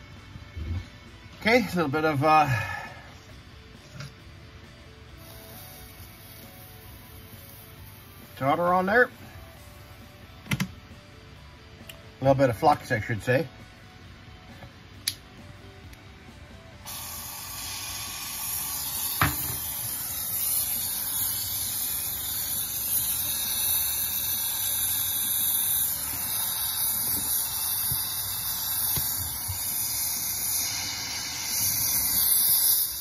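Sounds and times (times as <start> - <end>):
torch burning with hiss: 0.6 - 4.1, 5.0 - 10.4, 16.6 - 33.0
sharp click: 15.0 - 15.2.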